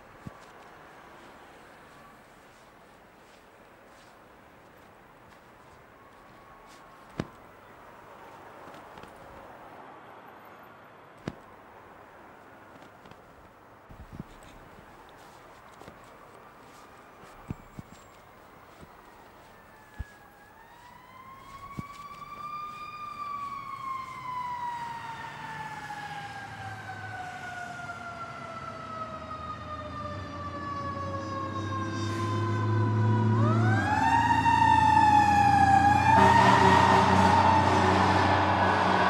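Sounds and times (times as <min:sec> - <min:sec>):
siren wailing: 0:04.7 - 0:07.6, 0:14.5 - 0:39.0.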